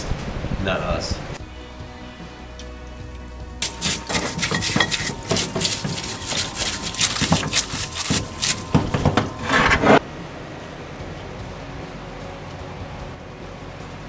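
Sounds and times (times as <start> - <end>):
stiff brush scrubbing metal: 3.6 - 10.0.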